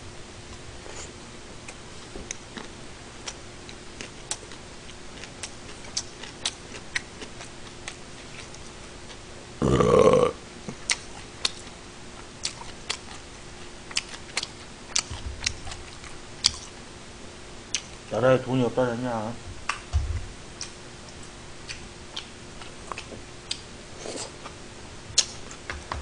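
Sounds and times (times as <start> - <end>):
man chewing: 0.5 - 13.3, 13.9 - 16.8, 17.7 - 18.0, 20.5 - 25.8
loud burp: 9.6 - 10.4
wet mouth clicks: 20.6 - 22.3.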